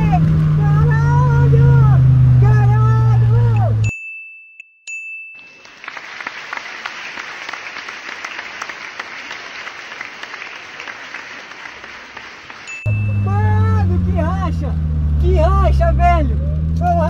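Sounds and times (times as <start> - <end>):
crowd clapping: 5.4 - 13.1.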